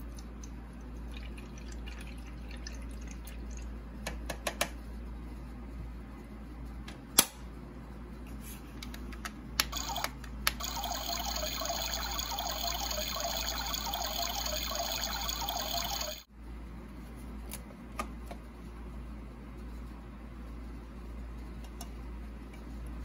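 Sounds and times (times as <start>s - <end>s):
small pump buzzing: 9.7s - 16.2s.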